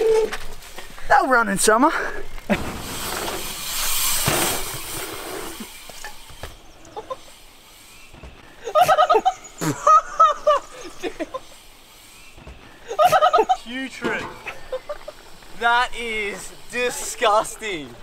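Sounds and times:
high-pitched vocal whoops: 0:00.0 - 0:00.4.

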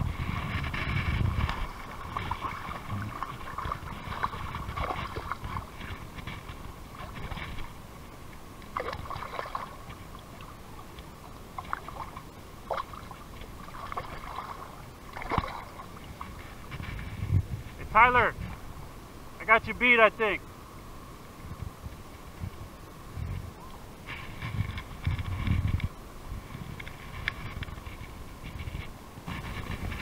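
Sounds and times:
water sloshing and dripping: 0:00.3 - 0:17.1
fish splashing at water surface: 0:08.7 - 0:10.6, 0:11.6 - 0:16.3.

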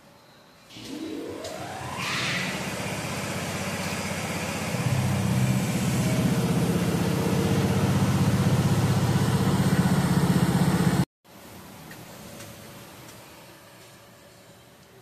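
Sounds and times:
engine throbbing: 0:00.7 - 0:11.1.

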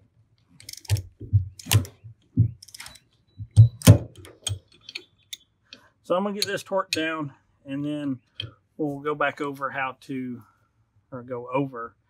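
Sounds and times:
wrench clicking and knocking: 0:02.5 - 0:05.4, 0:06.4 - 0:07.1.

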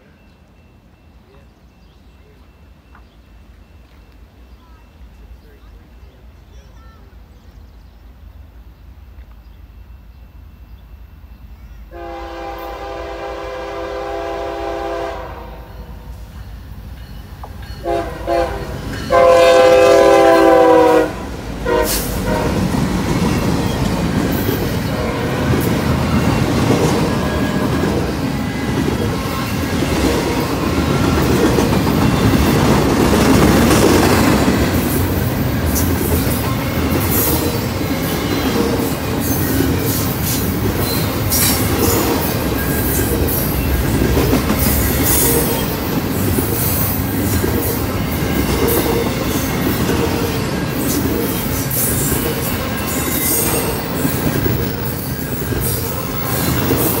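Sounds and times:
freight train rumbling on rails: 0:00.0 - 0:57.0
diesel locomotive horn blasts: 0:11.9 - 0:16.1, 0:17.8 - 0:22.8.

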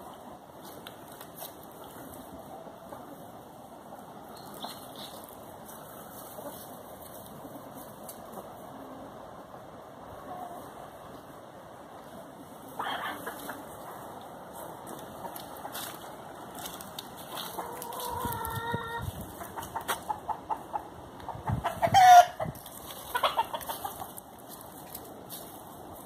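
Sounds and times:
chickens clucking and calling: 0:00.0 - 0:26.0
chicken squawk: 0:12.7 - 0:13.6, 0:17.4 - 0:24.0.

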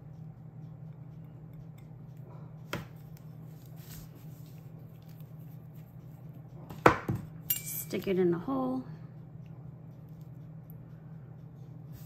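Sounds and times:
steady low hum: 0:00.0 - 0:12.0
quiet handling sounds: 0:02.6 - 0:06.8.

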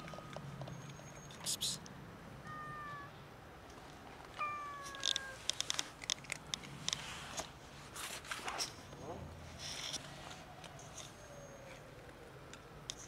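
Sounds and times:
cat meowing: 0:02.4 - 0:03.2, 0:04.4 - 0:05.4.

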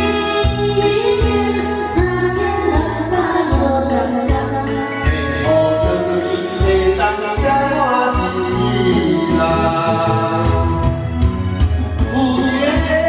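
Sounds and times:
woman singing into microphone: 0:00.0 - 0:10.4
backing track with bass and beat: 0:00.0 - 0:13.0
man singing into microphone: 0:05.2 - 0:11.2, 0:12.0 - 0:13.0.

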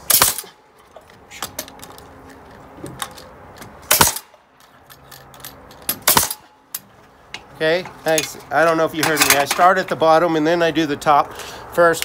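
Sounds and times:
pneumatic nailer bang: 0:00.0 - 0:00.6, 0:03.9 - 0:04.4, 0:05.9 - 0:06.4.

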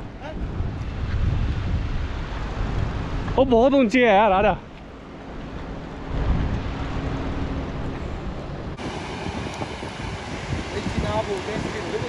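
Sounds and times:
car engine rumbling: 0:00.0 - 0:12.0
river rushing: 0:05.4 - 0:12.0.

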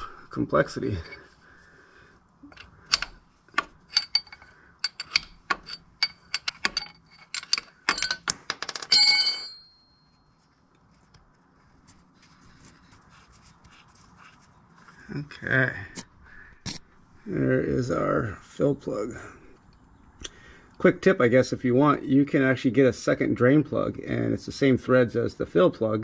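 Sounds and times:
wrench clicking on metal plug: 0:02.5 - 0:08.4
short ringing metal clatter: 0:08.9 - 0:10.2
faint handling noise: 0:09.4 - 0:15.2.

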